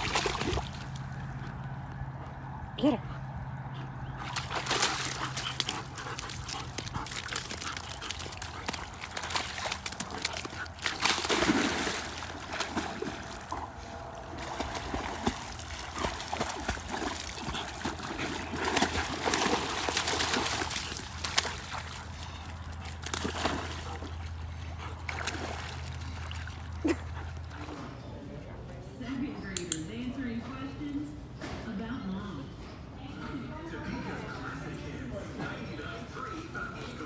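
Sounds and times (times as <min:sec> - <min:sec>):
dog splashing through water: 0:00.0 - 0:01.4, 0:04.1 - 0:27.8.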